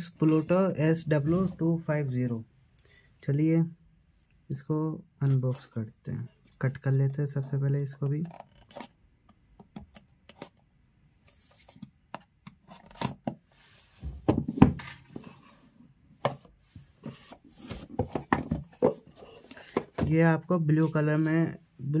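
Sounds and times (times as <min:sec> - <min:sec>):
box knocking on table: 0:18.0 - 0:19.1.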